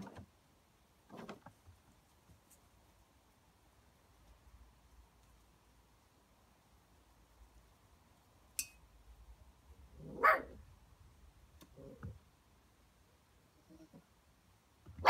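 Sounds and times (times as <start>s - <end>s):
puppy barking: 10.1s - 10.6s.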